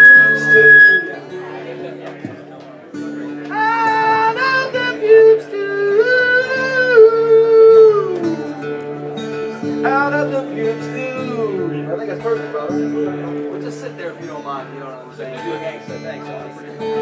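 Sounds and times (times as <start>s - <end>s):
man singing long notes: 0.0s - 1.2s, 3.5s - 8.6s
acoustic guitar: 0.0s - 17.0s.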